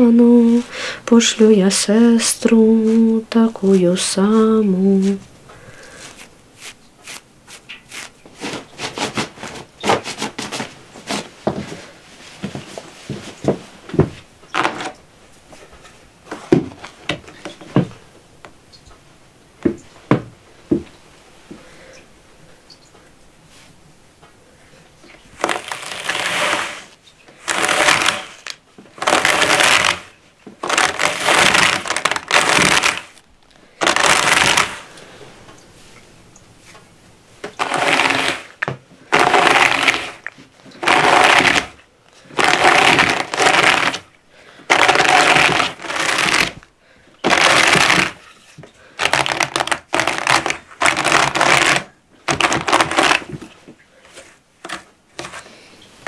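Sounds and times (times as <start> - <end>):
wool carder scratching strokes: 2.8 - 11.3, 25.4 - 33.2, 33.8 - 34.9, 37.6 - 44.1, 44.7 - 48.3.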